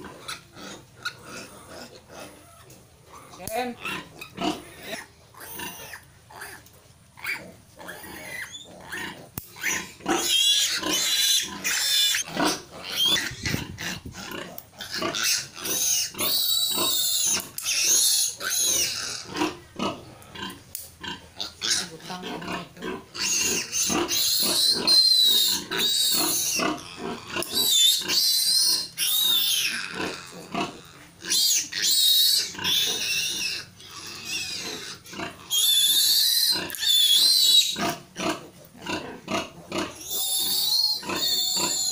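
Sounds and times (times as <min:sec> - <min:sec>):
piglet squealing: 0:07.2 - 0:19.4, 0:23.2 - 0:38.0, 0:39.3 - 0:41.9.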